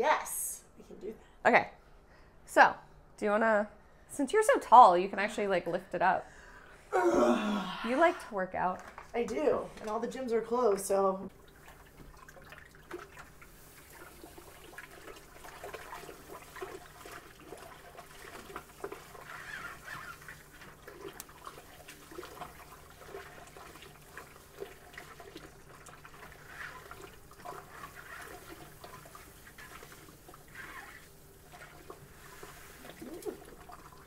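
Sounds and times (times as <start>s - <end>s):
wet sloshing and rustling: 10.7s - 34.0s
malt pouring into water: 11.3s - 34.0s.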